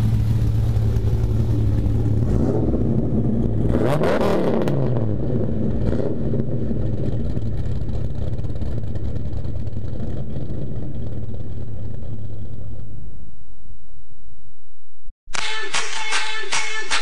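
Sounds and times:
engine running steadily: 0:00.0 - 0:13.3.

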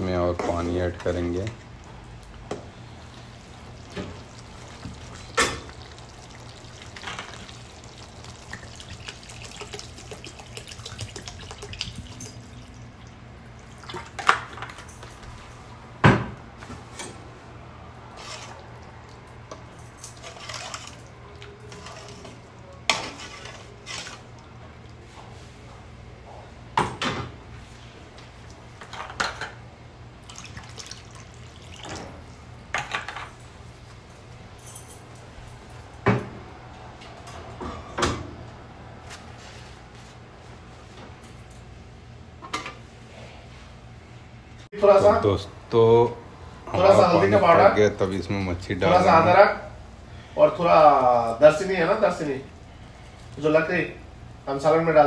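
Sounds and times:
water pouring into pan: 0:03.0 - 0:14.6, 0:30.2 - 0:32.0.

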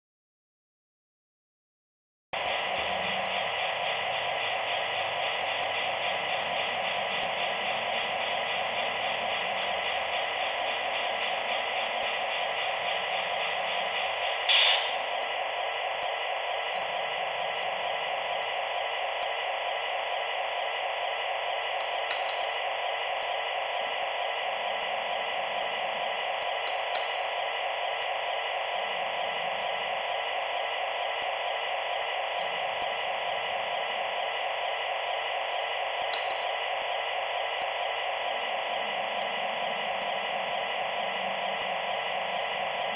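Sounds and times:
static hiss: 0:02.8 - 0:42.9
sharp clicks: 0:21.7 - 0:22.6, 0:26.2 - 0:27.3, 0:36.0 - 0:36.6.

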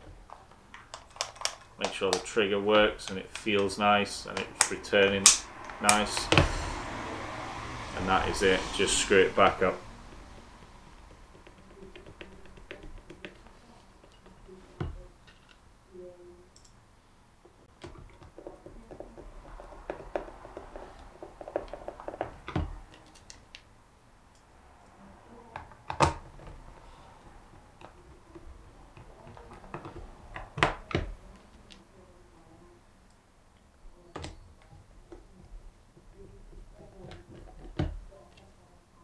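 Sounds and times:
tools knocking: 0:10.6 - 0:15.4, 0:17.8 - 0:23.0.

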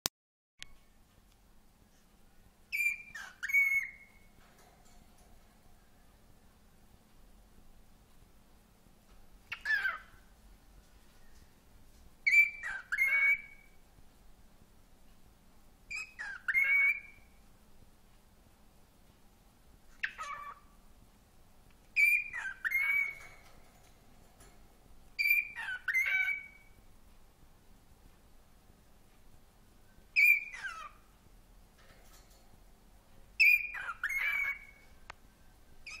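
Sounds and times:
cockatiel whistling: 0:02.7 - 0:04.2, 0:09.5 - 0:10.1, 0:12.3 - 0:13.7, 0:15.9 - 0:17.3, 0:22.0 - 0:23.2, 0:25.2 - 0:26.7, 0:30.2 - 0:31.0, 0:33.4 - 0:34.8.

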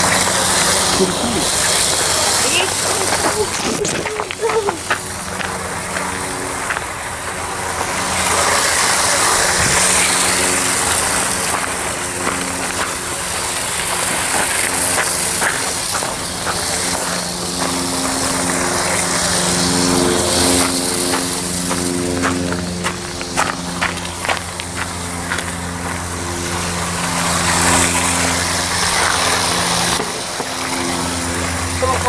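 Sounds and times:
toy train motors whirring: 0:00.0 - 0:26.7
wheels clicking on track: 0:00.0 - 0:32.0.

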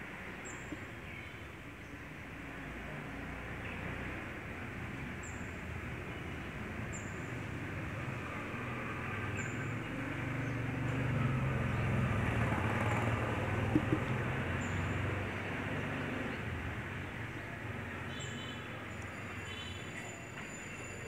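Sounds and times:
motor vehicle passing: 0:08.0 - 0:16.9.

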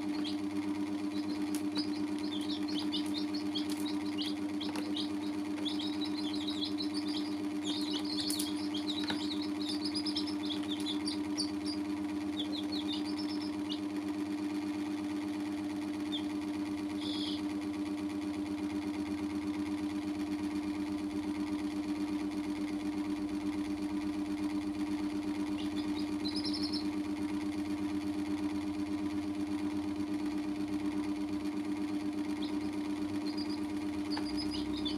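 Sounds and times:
baby chicks peeping: 0:00.0 - 0:14.4, 0:16.0 - 0:17.6, 0:25.4 - 0:28.7, 0:29.8 - 0:34.9
machine hum: 0:00.0 - 0:34.9.

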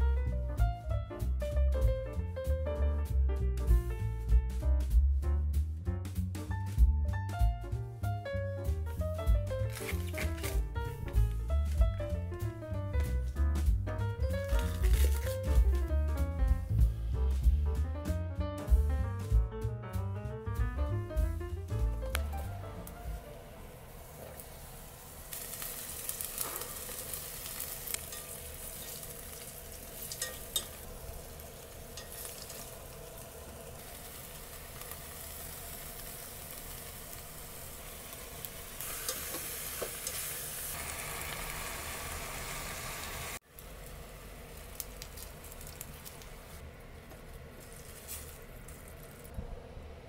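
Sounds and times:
food sizzling in hot oil: 0:14.3 - 0:15.6, 0:23.8 - 0:46.6
utensils tapping a pot: 0:27.9 - 0:29.0, 0:30.0 - 0:30.9, 0:31.9 - 0:32.8.

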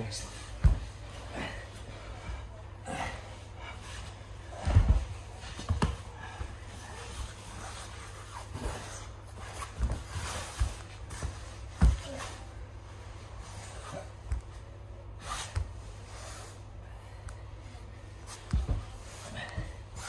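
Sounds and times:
bodies rolling on a mat: 0:00.3 - 0:20.0
breathing: 0:01.2 - 0:04.7.

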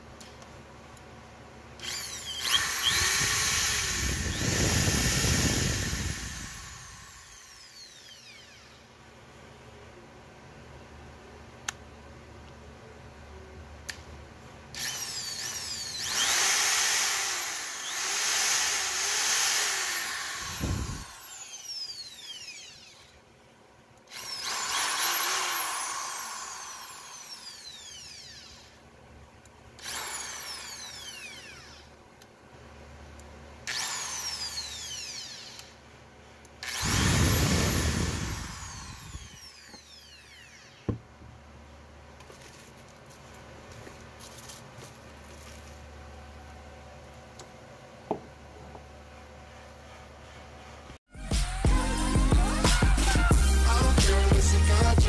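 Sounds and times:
electric drill motor whine: 0:01.8 - 0:09.0, 0:14.8 - 0:23.2, 0:24.1 - 0:28.8, 0:29.8 - 0:32.0, 0:33.6 - 0:35.8, 0:36.6 - 0:41.0.

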